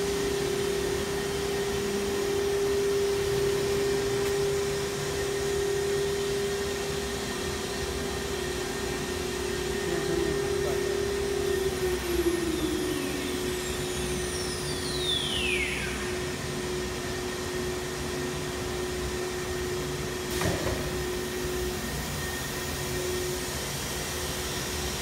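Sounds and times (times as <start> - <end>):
cnc router humming: 0.0 - 25.0.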